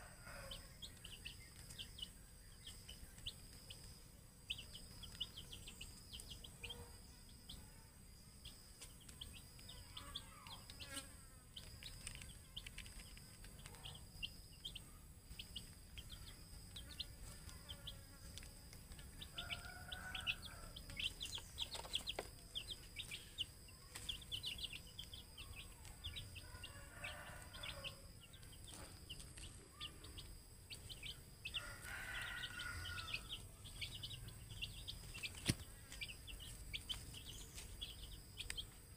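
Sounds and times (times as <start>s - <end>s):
lower fuller chicken calls: 0.0s - 2.2s, 14.6s - 38.8s
chicks peeping: 0.0s - 38.9s.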